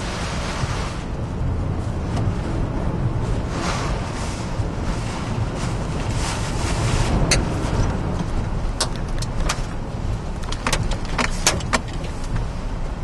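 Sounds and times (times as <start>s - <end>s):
low road rumble: 0.0s - 13.0s
wind and rain rushing on car: 0.0s - 13.0s.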